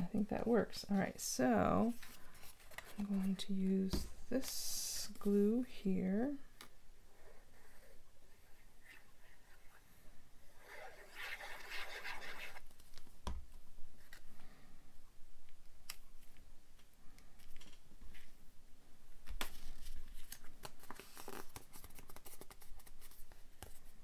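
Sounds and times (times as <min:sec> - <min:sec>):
paper rustling: 0:01.9 - 0:04.6, 0:19.2 - 0:24.0
paper rubbing and crinkling: 0:10.6 - 0:13.1, 0:19.4 - 0:24.0.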